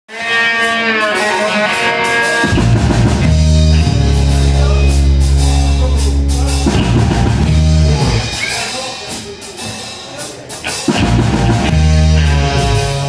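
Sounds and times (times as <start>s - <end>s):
electric guitar tones ringing: 0.1s - 8.7s
bass guitar: 0.1s - 9.7s, 10.6s - 13.0s
drum kit with cymbal hits: 0.1s - 13.0s.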